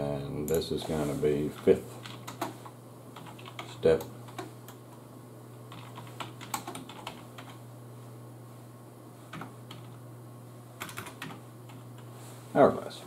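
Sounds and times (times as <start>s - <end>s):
steady low hum: 0.0s - 13.0s
computer keyboard typing: 1.6s - 2.6s, 3.2s - 4.8s, 5.7s - 7.6s, 9.3s - 10.0s, 10.8s - 12.0s.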